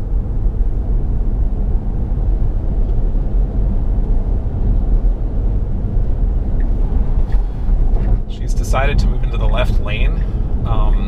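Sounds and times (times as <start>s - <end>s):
tyre and road noise: 0.0s - 11.0s.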